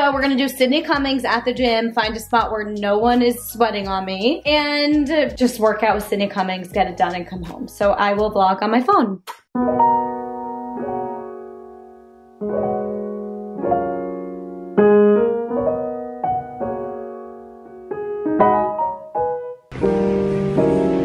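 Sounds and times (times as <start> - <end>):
piano chords ringing: 9.6 - 21.0.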